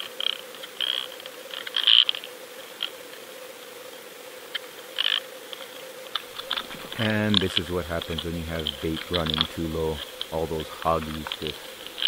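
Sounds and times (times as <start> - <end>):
sharp clicks and crackles: 4.5 - 12.0
faint underwater hum: 5.8 - 12.0.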